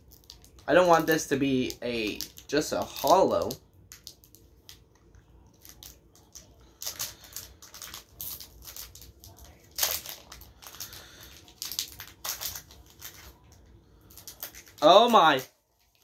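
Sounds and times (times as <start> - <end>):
foil wrapper crinkling: 0.0 - 16.0.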